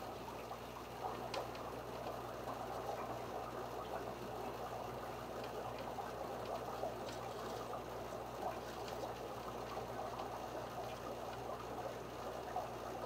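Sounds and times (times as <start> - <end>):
watery background hiss: 0.0 - 13.0.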